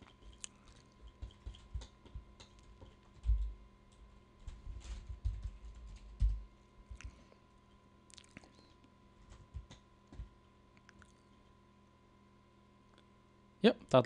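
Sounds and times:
keyboard and mouse clicks: 0.2 - 3.5.

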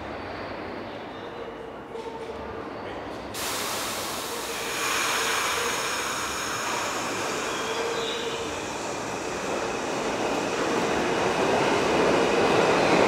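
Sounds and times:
train motors and wheels rumbling: 0.0 - 13.0
sharp hiss of air: 3.4 - 10.1.

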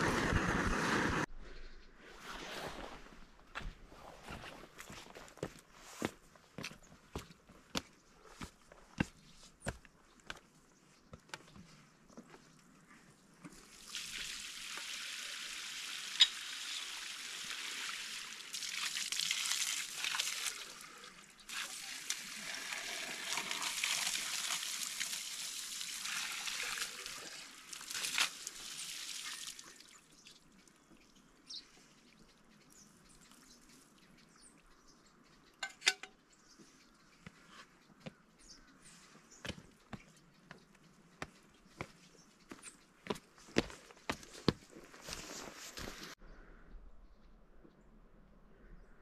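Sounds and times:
water gushing from hose: 13.6 - 30.1.

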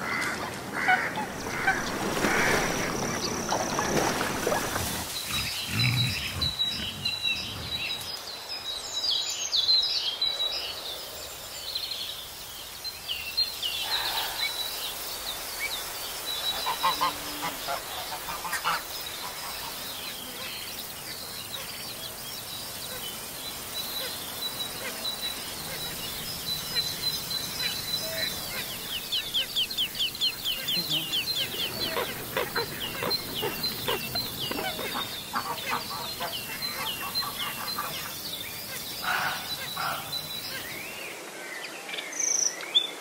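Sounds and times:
small birds chirping: 1.3 - 10.7, 11.6 - 41.2
wild boar grunting: 4.4 - 8.1.

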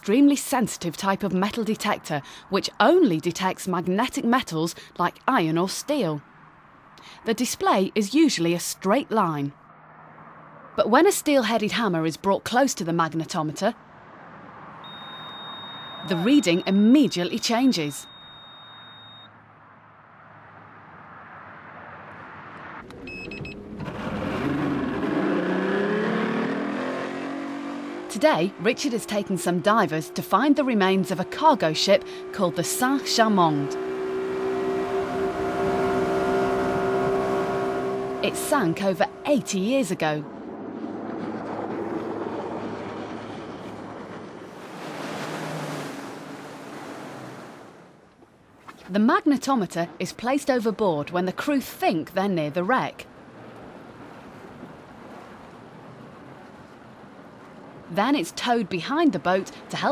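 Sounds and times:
wind: 0.0 - 59.9
water rushing from boat hull: 14.4 - 19.2, 23.2 - 48.1, 53.0 - 59.9
outboard motor revving: 23.6 - 47.6
faint engine hum: 26.8 - 47.8.

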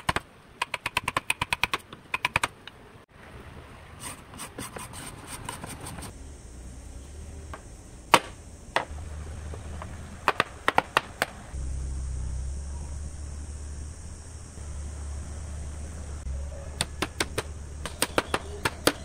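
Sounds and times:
chisel knocking on wood: 9.8 - 11.4
low hum: 11.3 - 17.0.

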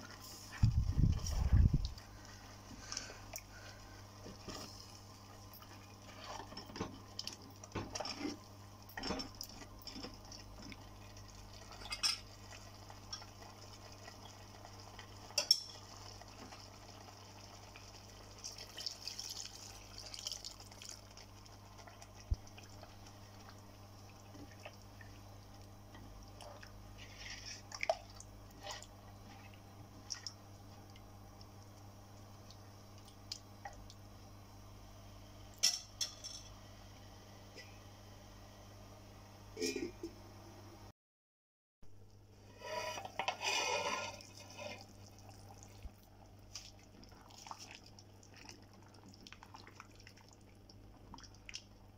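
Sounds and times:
liquid pouring: 16.0 - 25.2.

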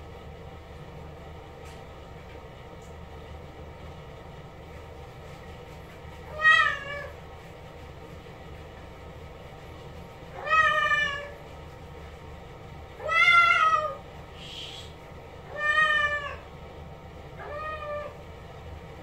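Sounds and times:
cat meowing: 6.3 - 7.1, 10.4 - 11.4, 13.0 - 14.0, 15.5 - 16.4, 17.4 - 18.2.

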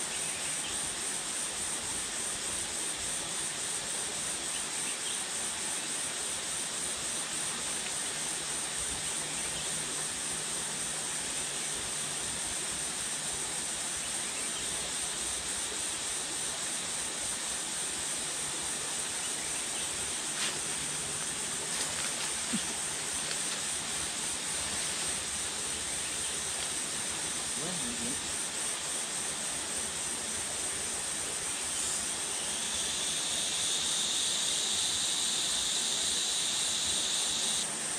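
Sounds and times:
insects buzzing: 0.0 - 37.9.

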